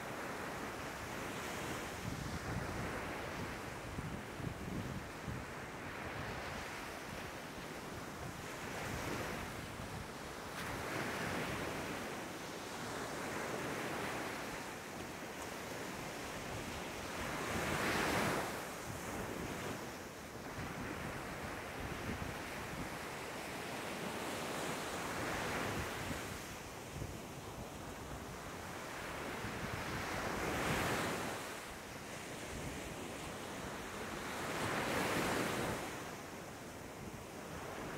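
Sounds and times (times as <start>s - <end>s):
wind rumble on microphone: 1.6s - 7.3s.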